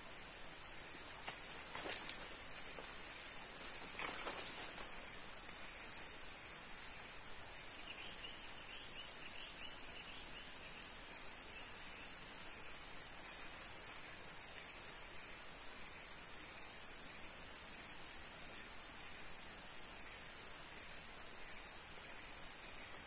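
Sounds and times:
insects droning: 0:00.0 - 0:23.0
footsteps rustling through leaves: 0:01.1 - 0:05.1.

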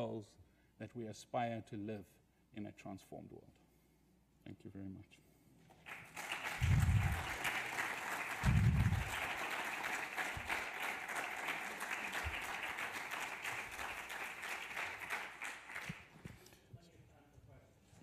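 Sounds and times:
audience applauding: 0:05.8 - 0:16.2
dull low thumps: 0:08.4 - 0:09.1.

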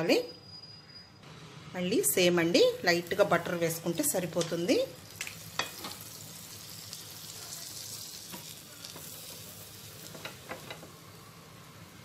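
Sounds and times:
butter sizzling on a pan: 0:02.7 - 0:12.0.

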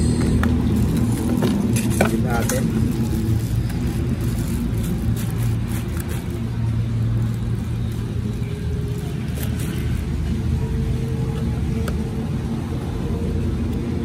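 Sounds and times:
machine rumble and hum: 0:00.0 - 0:14.0
plastic packaging crinkling: 0:00.2 - 0:10.3.

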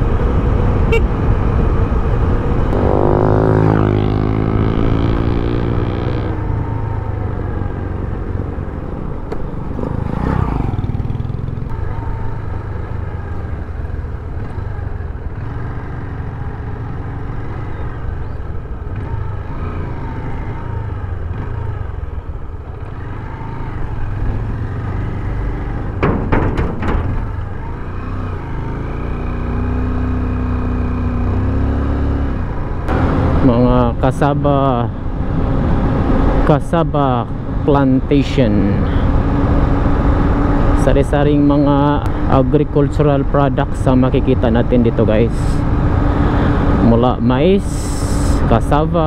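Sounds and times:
motorcycle engine accelerating: 0:00.0 - 0:36.5.

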